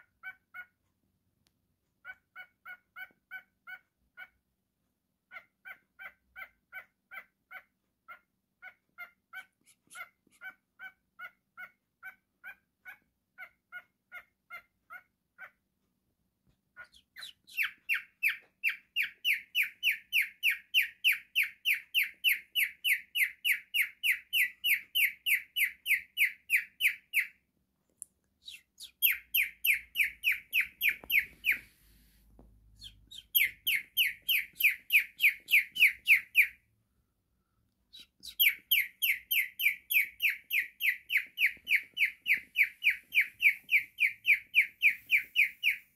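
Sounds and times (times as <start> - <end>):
cockatiel whistled chirps: 16.8 - 27.4, 28.4 - 32.0, 32.6 - 36.6, 37.9 - 45.9.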